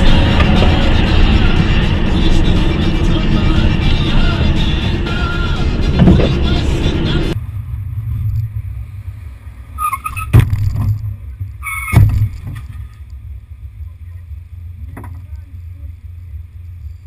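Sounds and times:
road and wind rumble: 0:00.0 - 0:17.0.

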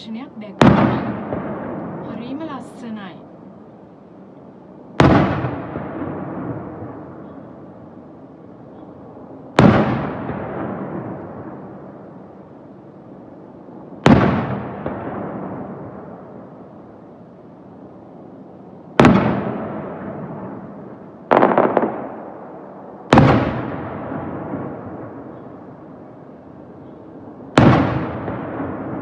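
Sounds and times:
firework shells booming with echo: 0:00.6 - 0:02.1, 0:05.0 - 0:07.7, 0:08.7 - 0:12.0, 0:14.0 - 0:16.3, 0:19.0 - 0:26.0, 0:26.9 - 0:29.0.

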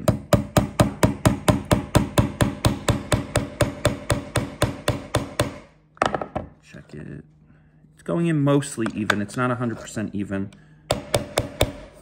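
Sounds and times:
hammer tapping a nail: 0:00.0 - 0:05.7, 0:10.9 - 0:12.0.

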